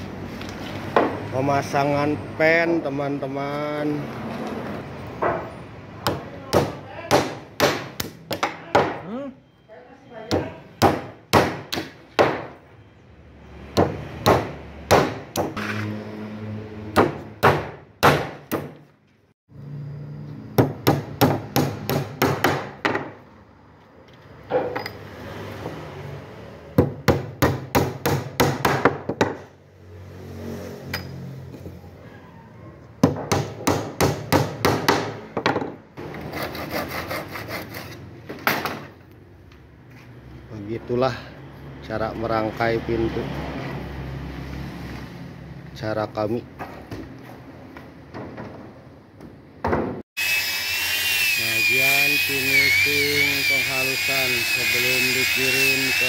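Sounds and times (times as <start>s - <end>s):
hammer striking wooden pegs: 5.2s - 9.1s, 10.3s - 12.6s, 13.8s - 15.6s, 17.0s - 18.9s, 20.6s - 23.2s, 26.8s - 29.5s, 33.0s - 35.8s
hand saw cutting wood: 36.0s - 38.2s, 50.2s - 56.0s.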